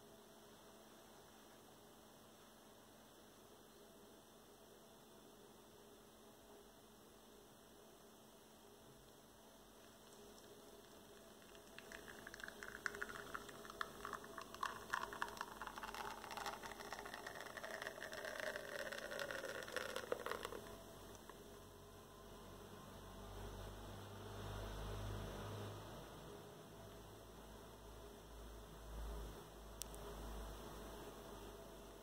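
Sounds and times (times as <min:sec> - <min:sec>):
coffee dripping into a cup: 0:09.7 - 0:21.6.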